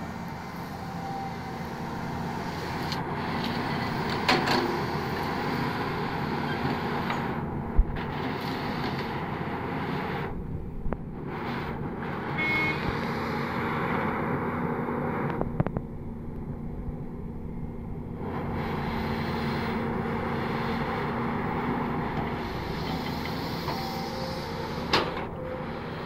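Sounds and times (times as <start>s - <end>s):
excavator diesel engine: 0.0s - 26.0s.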